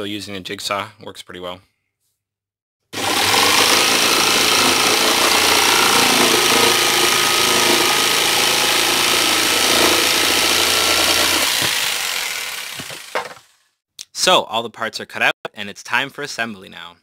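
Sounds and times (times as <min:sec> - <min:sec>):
electric jigsaw cutting wood: 0:03.0 - 0:13.6
motor winding down: 0:03.0 - 0:13.6.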